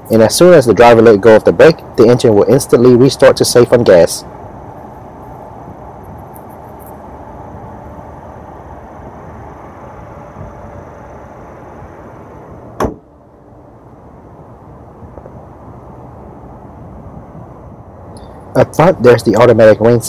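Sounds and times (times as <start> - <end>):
steady background hiss: 0.0 - 20.0
car hood slamming: 12.8 - 13.1.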